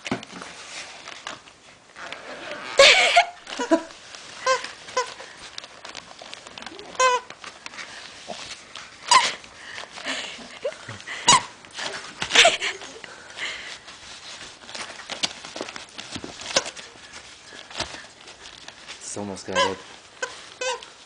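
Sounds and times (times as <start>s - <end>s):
wrapping paper crinkling: 0.0s - 21.0s
squeaky toy squeaking: 4.4s - 5.2s, 6.9s - 7.3s, 9.1s - 9.4s, 11.3s - 11.5s, 19.4s - 20.9s.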